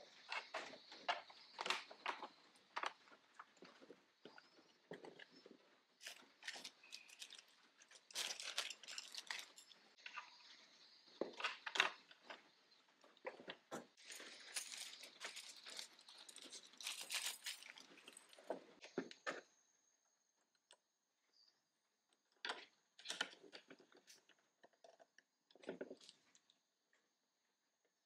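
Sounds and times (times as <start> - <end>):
plastic bags crinkling: 6.0 - 9.8, 14.0 - 18.5.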